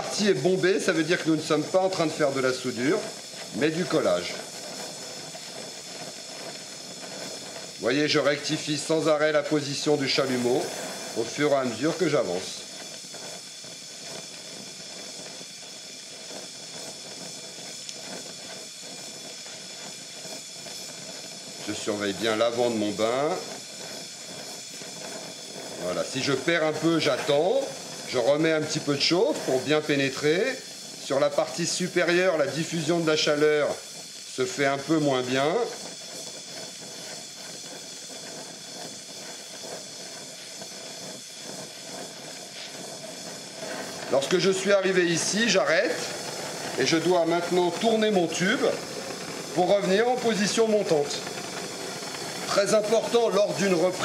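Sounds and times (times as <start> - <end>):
welding torch flame hissing: 0.0 - 54.0.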